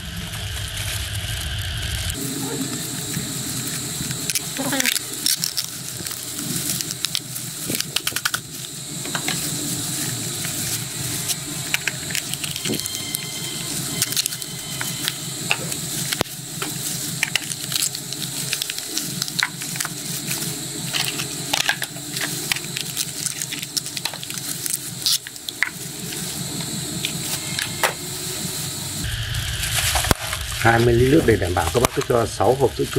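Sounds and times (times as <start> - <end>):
plastic cups crinkling: 0.2 - 28.0
steady background hiss: 1.8 - 32.9.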